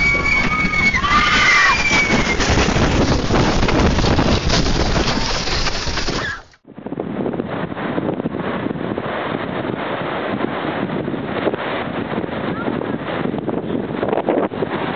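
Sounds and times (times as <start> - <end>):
high falling wail: 0.0 - 6.5
loud rushing wind and debris: 0.0 - 14.9
wind buffeting microphone: 0.0 - 14.9.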